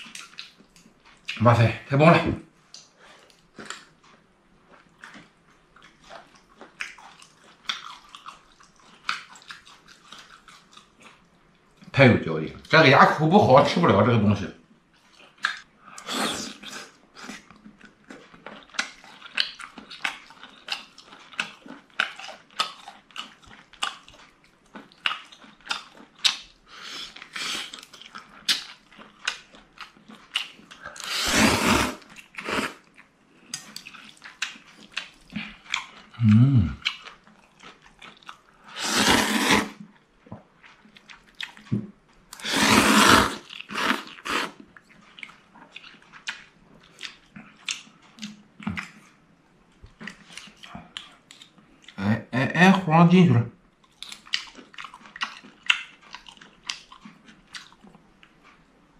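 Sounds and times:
wet chewing and lip smacks: 0:00.0 - 0:01.4, 0:02.7 - 0:11.9, 0:15.0 - 0:31.2, 0:32.0 - 0:38.8, 0:39.6 - 0:42.4, 0:43.2 - 0:52.0, 0:53.7 - 0:58.9
loud slurps: 0:16.0 - 0:17.3, 0:30.9 - 0:32.8, 0:38.6 - 0:39.8, 0:42.4 - 0:44.6.

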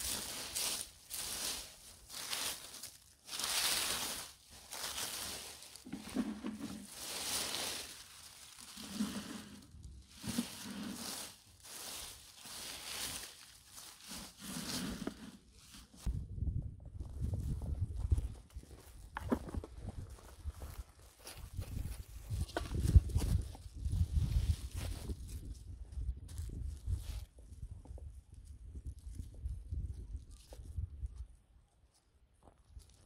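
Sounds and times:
dry leaves rustling and crunching: 0:00.0 - 0:16.1, 0:20.6 - 0:25.6, 0:26.3 - 0:27.3
dull low thumps: 0:16.1 - 0:18.4.

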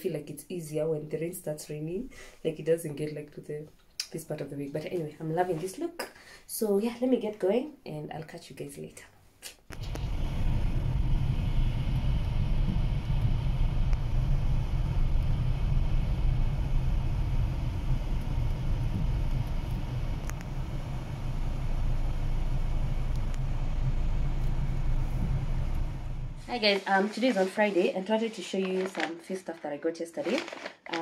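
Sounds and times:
car engine rumble: 0:09.7 - 0:26.6
road noise: 0:09.8 - 0:26.8.

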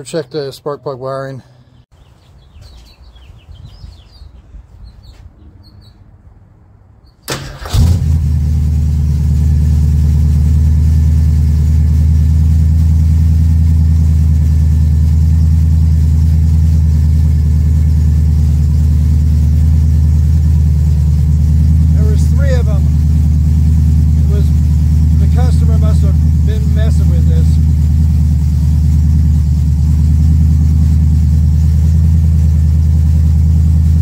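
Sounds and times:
car engine cranking and idling: 0:07.2 - 0:34.0.

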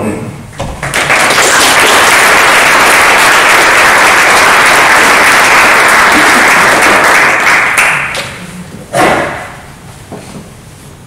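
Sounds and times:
audience applauding: 0:00.8 - 0:08.4.

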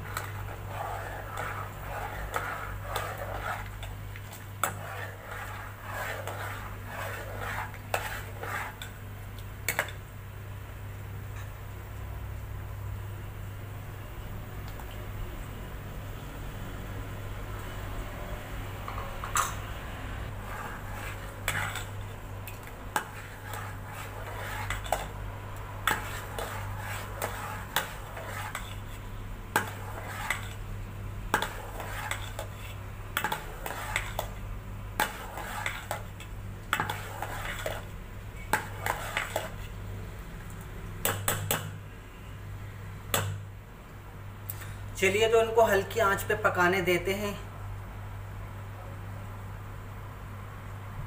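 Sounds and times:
metal spoon scraping steel pot: 0:00.0 - 0:04.0, 0:04.6 - 0:09.0, 0:20.3 - 0:25.2, 0:25.8 - 0:30.6, 0:31.4 - 0:34.4, 0:35.0 - 0:39.7
steady low hum: 0:00.0 - 0:45.0.

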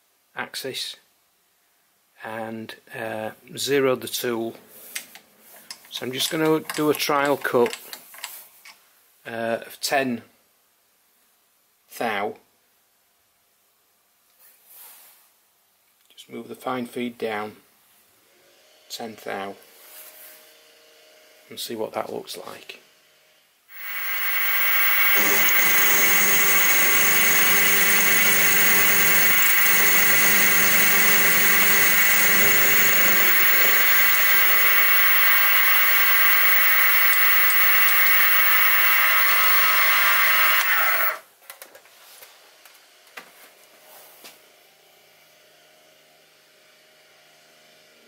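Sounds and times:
end mill cutting metal: 0:23.7 - 0:41.2
milling spindle whining: 0:23.7 - 0:41.2.

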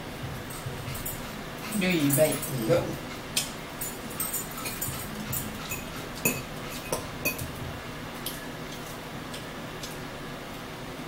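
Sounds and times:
forks clinking against dishes: 0:00.5 - 0:07.5.

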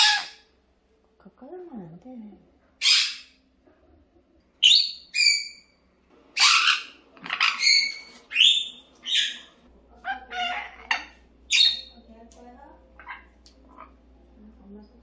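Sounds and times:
parrot whistles and squawks: 0:00.0 - 0:00.4, 0:02.8 - 0:03.4, 0:04.6 - 0:05.7, 0:06.4 - 0:11.9.

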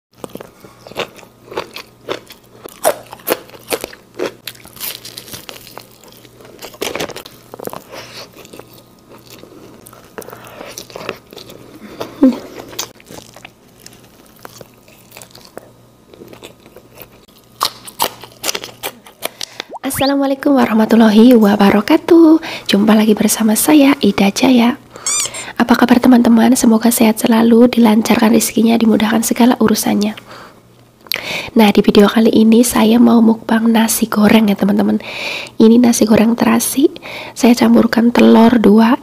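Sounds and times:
person chewing crunchy food: 0:00.2 - 0:19.9.

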